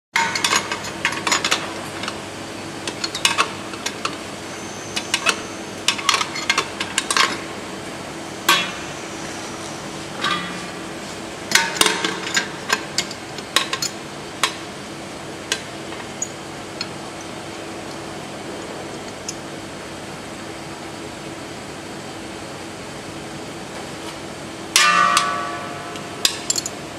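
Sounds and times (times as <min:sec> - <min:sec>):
machinery hum: 0:00.2 - 0:26.9
metal parts clinking in steel bowl: 0:26.3 - 0:26.8.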